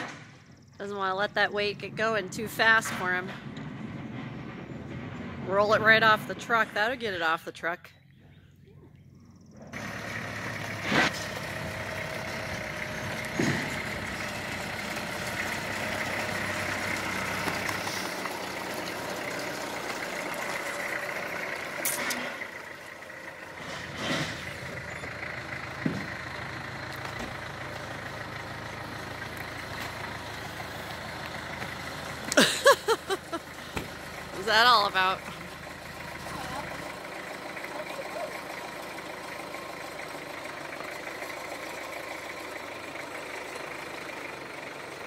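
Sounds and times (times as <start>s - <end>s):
diesel engine idling: 0.0s - 45.0s
sharp knocks and clanks: 13.1s - 14.3s, 25.8s - 26.2s.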